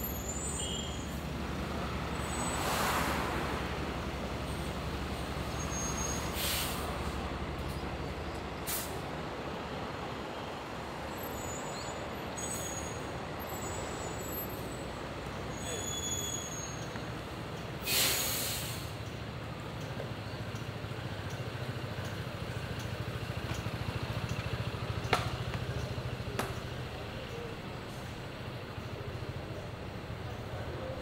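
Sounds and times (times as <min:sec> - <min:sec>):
heavy engine hum: 0:00.0 - 0:11.3, 0:12.0 - 0:31.0
street traffic: 0:00.0 - 0:31.0
loud hiss: 0:06.0 - 0:07.2, 0:08.6 - 0:09.0, 0:17.8 - 0:19.0.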